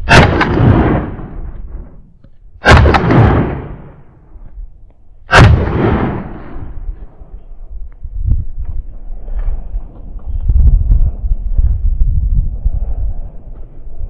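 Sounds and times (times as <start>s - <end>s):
shotgun shots with echo: 0.0s - 1.4s, 2.6s - 4.0s, 5.3s - 6.7s.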